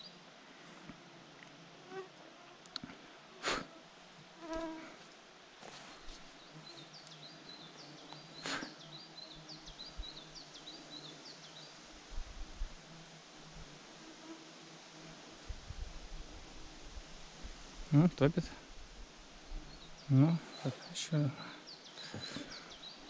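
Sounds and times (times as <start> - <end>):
flying insects buzzing: 0.0 - 23.0.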